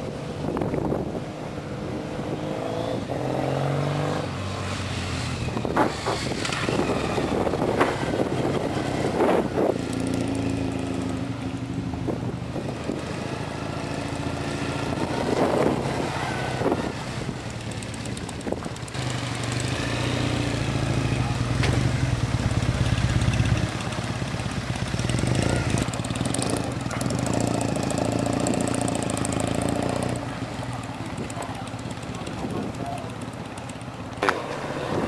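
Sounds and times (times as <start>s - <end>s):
motorcycles passing by: 0.0s - 35.0s.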